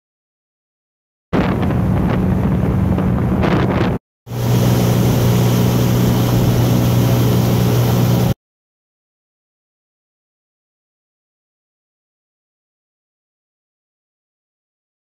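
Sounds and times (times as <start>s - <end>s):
motorboat engine humming: 1.4s - 8.4s
wind on microphone: 1.4s - 8.4s
water rushing: 4.3s - 8.4s.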